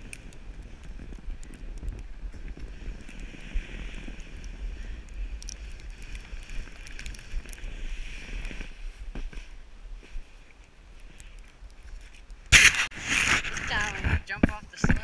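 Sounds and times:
wind rumbling on microphone: 0:00.0 - 0:15.0
snow hissing under sled: 0:01.6 - 0:09.6.

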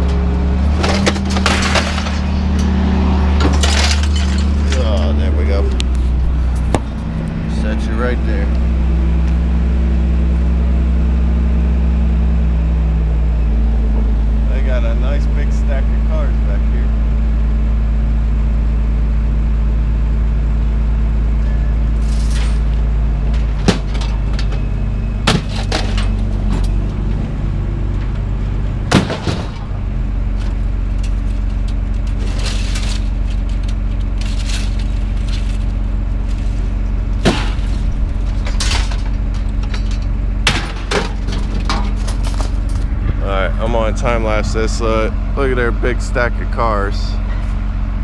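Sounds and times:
scrap metal clanking and banging: 0:00.0 - 0:08.4, 0:22.0 - 0:27.2, 0:28.0 - 0:45.1
engine running low: 0:00.0 - 0:48.0.

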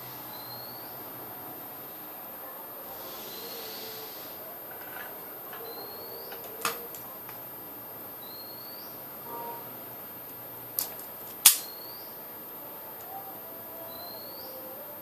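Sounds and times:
sharp click: 0:10.8 - 0:11.8.

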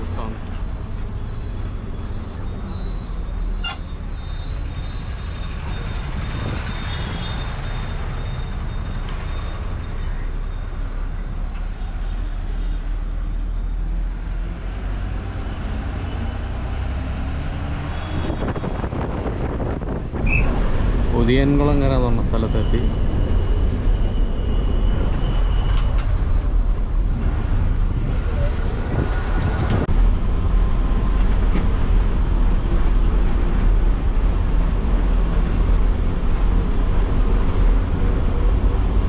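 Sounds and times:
bus diesel engine rumble: 0:00.0 - 0:39.0
road noise: 0:00.0 - 0:39.0.

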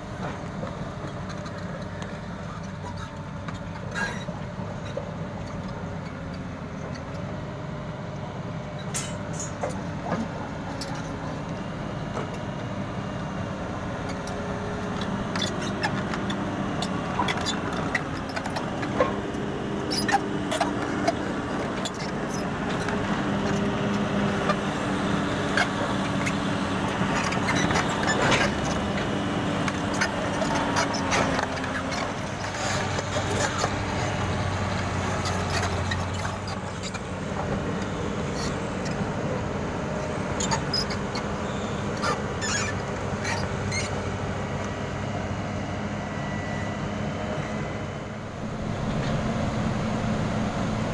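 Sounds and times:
diesel engine running: 0:00.0 - 0:50.9
track links clanking: 0:48.3 - 0:50.9.

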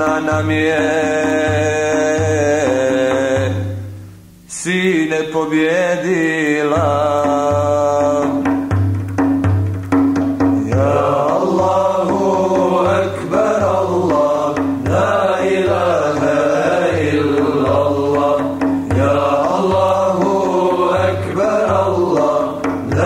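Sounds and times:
choir singing devotional song: 0:00.0 - 0:03.8, 0:10.6 - 0:23.0
low pulsing beat: 0:06.8 - 0:23.0.

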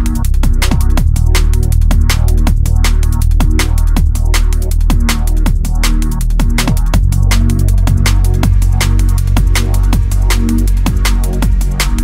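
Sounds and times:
electronic music: 0:00.0 - 0:12.0
fast drum hits: 0:00.0 - 0:12.0
heavy sustained bass: 0:00.0 - 0:12.0.

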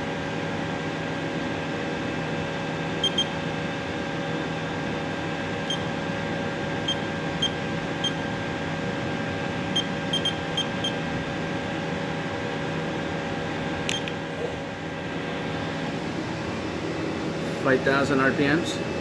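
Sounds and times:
machine steady hum: 0:00.0 - 0:19.0
short high keypad beeps: 0:03.0 - 0:03.3, 0:09.8 - 0:11.0, 0:13.9 - 0:14.1.

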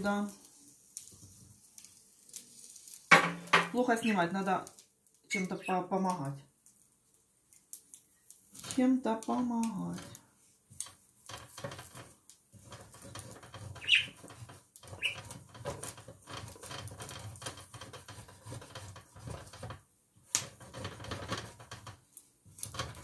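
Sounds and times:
spatula scraping grill plate: 0:09.9 - 0:23.0.

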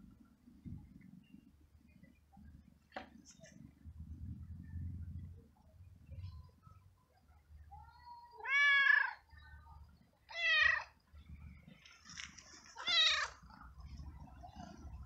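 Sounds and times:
cat meowing: 0:08.4 - 0:09.2, 0:10.3 - 0:10.9, 0:12.8 - 0:13.4.

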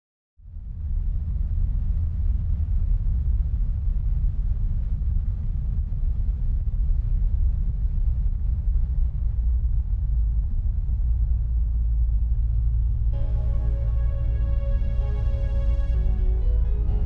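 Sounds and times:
music: 0:13.0 - 0:17.0.

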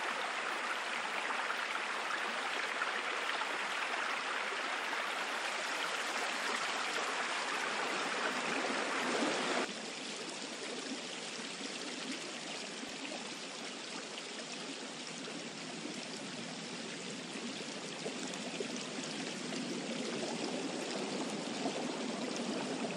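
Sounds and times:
synthetic running water: 0:00.0 - 0:12.9.

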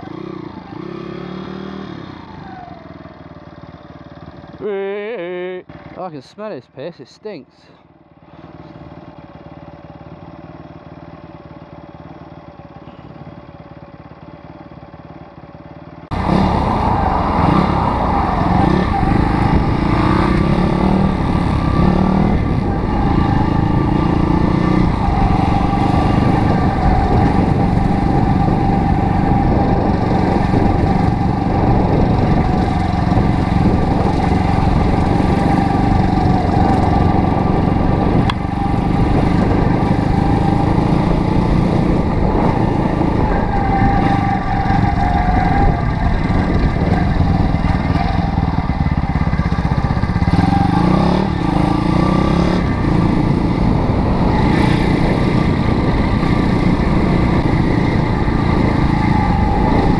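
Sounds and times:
small motorbike engine: 0:00.0 - 0:06.0, 0:07.7 - 0:59.9
wind noise: 0:16.1 - 0:59.9.

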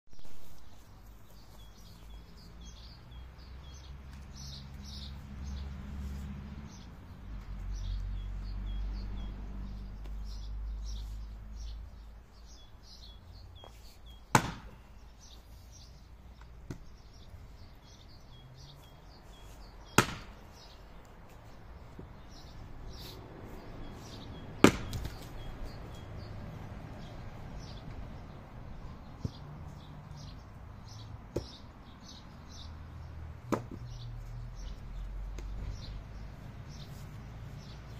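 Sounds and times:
small birds chirping: 0:00.1 - 0:37.9
axe splitting a log: 0:14.3 - 0:14.8, 0:19.9 - 0:20.4, 0:24.6 - 0:25.2, 0:33.5 - 0:33.8.

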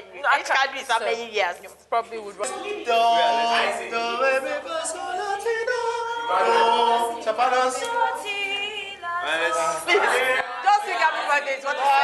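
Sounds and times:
group singing unaccompanied: 0:02.5 - 0:12.0.

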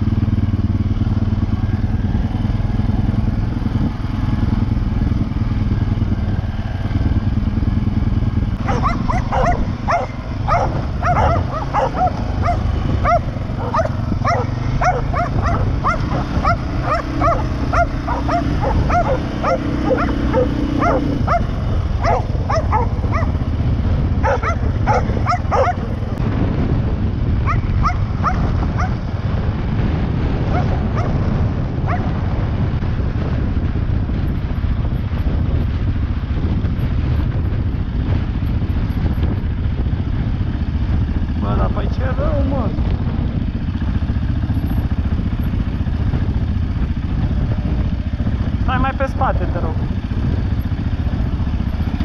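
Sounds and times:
atv engine running: 0:00.0 - 0:52.0
small dog barking: 0:08.6 - 0:23.4, 0:24.2 - 0:26.0, 0:27.4 - 0:29.0, 0:30.5 - 0:31.2, 0:31.9 - 0:32.2.

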